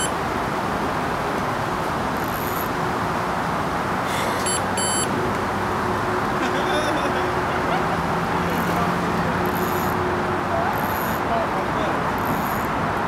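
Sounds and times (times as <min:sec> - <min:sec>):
bite alarm bleeps: 0:04.4 - 0:05.1.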